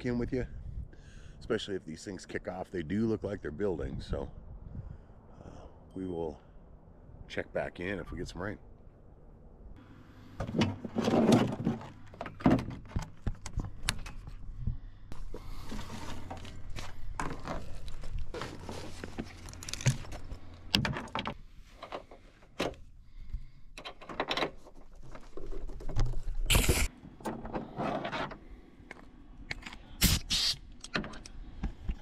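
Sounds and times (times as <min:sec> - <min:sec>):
objects clunking and knocking: 0:10.4 - 0:14.4, 0:15.4 - 0:22.8, 0:23.8 - 0:29.7
rustling of handled things: 0:10.4 - 0:29.8.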